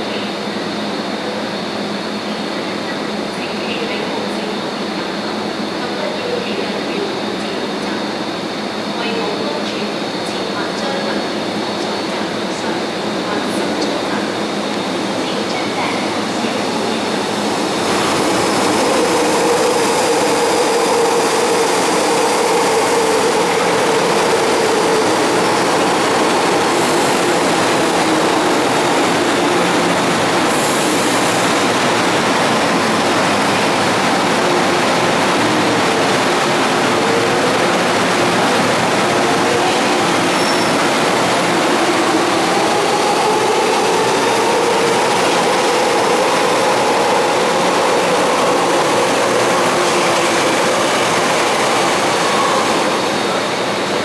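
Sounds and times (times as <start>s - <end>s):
electric train rumbling: 0.0s - 54.0s.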